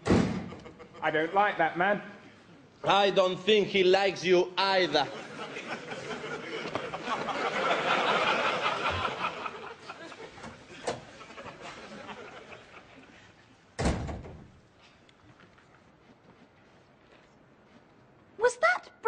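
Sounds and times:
wooden door shutting with thud: 0.0 - 0.6, 13.8 - 14.5
audience laughter: 4.8 - 13.4.

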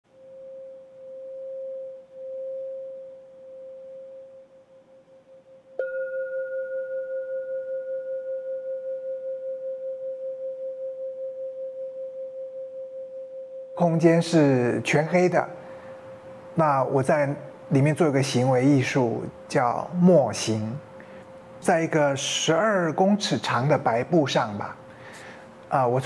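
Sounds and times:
singing bowl ringing: 0.1 - 16.6.

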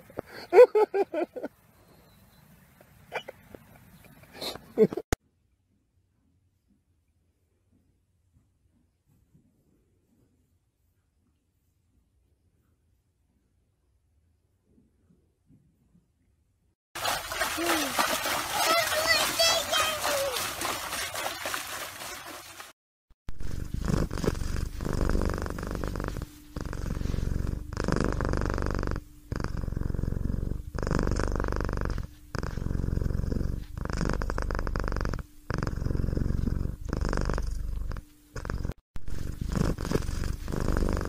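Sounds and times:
water splashing: 17.0 - 22.8
cat purring: 23.4 - 41.0.

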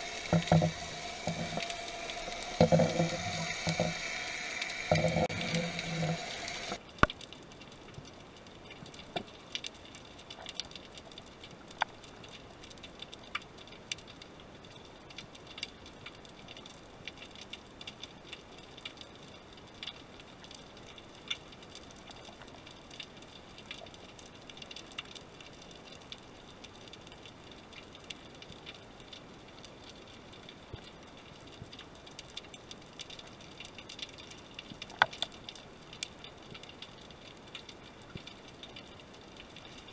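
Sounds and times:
faint underwater hiss: 0.0 - 7.0
sharp clicks and crackles: 0.0 - 39.9.

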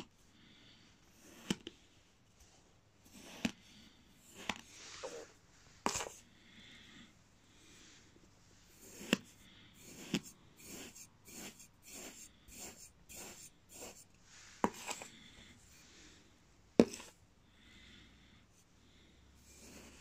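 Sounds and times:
knife scraping through sand: 9.8 - 15.1.

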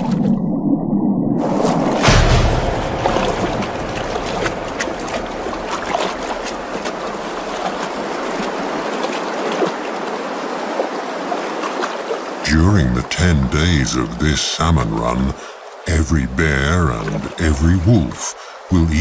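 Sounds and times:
water splashing: 0.0 - 0.4, 1.4 - 19.0
stream rushing over rocks: 1.5 - 19.0
small splashes and drips: 3.0 - 12.4.

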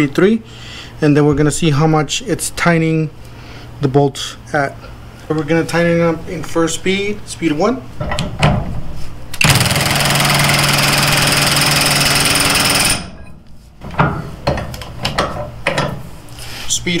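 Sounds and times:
impact wrench hammering: 9.4 - 13.3.

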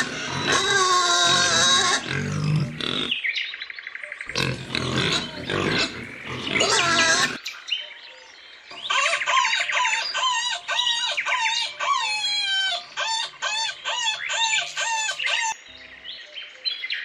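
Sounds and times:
piglets grunting: 0.0 - 3.2, 4.3 - 7.4
piglets squealing: 0.0 - 3.2, 4.3 - 7.4, 8.9 - 15.6.

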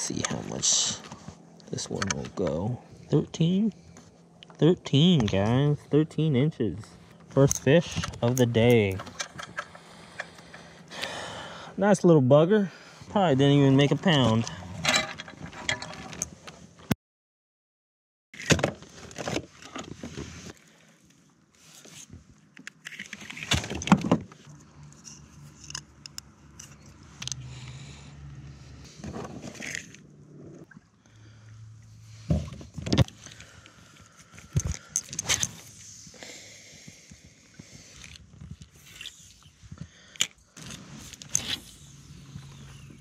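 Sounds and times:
fishing gear clicking and rattling: 7.0 - 11.0, 14.0 - 16.4, 22.5 - 27.5, 32.7 - 35.9, 36.8 - 43.0.

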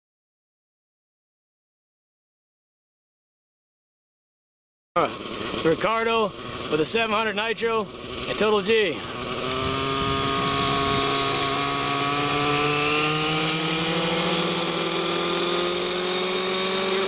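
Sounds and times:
model helicopter engine spooling up: 5.0 - 17.0.

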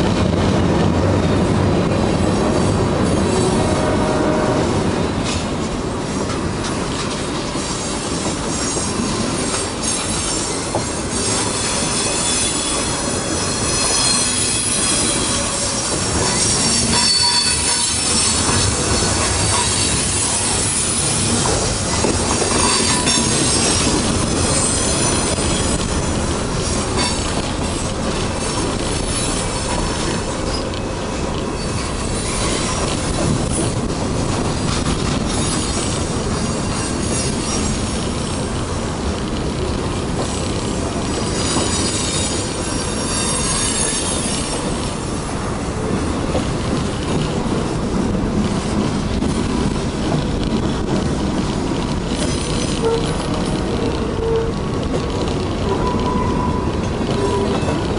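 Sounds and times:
train wheels rumbling and clacking: 0.0 - 57.9
high-pitched wheel squeal: 8.5 - 21.6, 22.2 - 26.0, 41.3 - 44.8, 55.7 - 57.8.

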